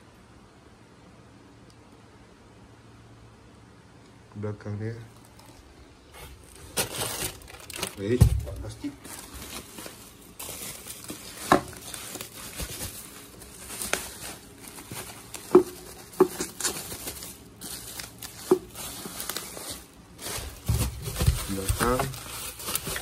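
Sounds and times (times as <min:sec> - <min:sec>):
plastic wrap crinkling: 0:04.9 - 0:23.0.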